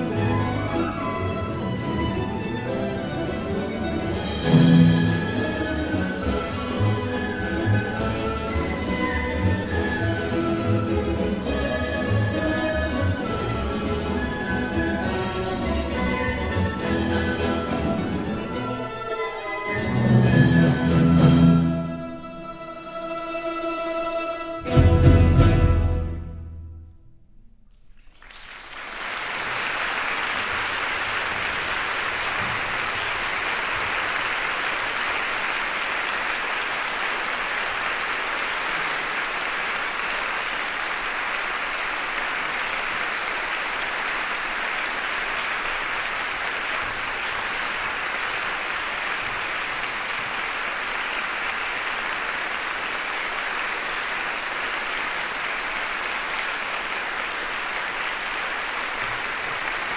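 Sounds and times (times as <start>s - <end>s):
audience applause: 28.0s - 59.9s.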